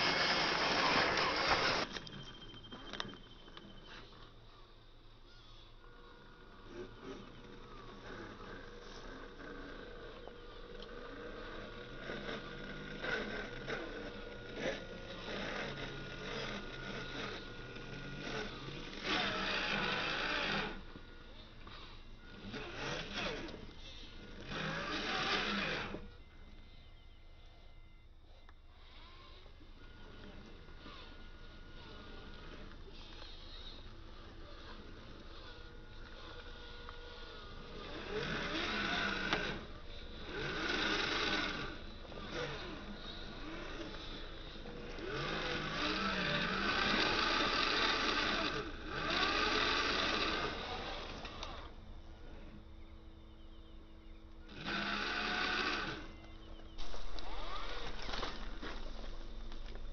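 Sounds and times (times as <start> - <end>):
electric motor and gearbox whirring: 0.0 - 59.9.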